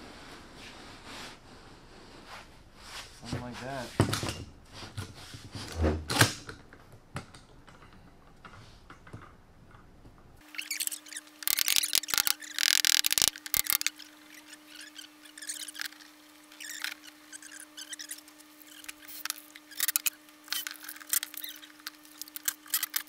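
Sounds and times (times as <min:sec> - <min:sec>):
loud clicking and rasping: 0:10.6 - 0:23.0.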